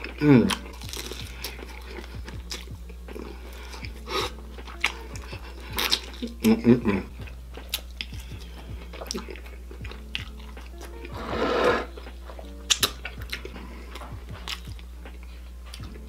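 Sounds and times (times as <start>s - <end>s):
chewing: 0.0s - 7.0s, 7.6s - 11.2s, 11.8s - 16.0s
background music: 0.0s - 16.0s.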